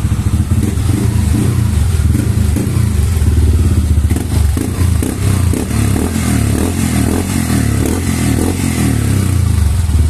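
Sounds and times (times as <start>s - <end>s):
scooter engine idling: 0.0s - 10.0s.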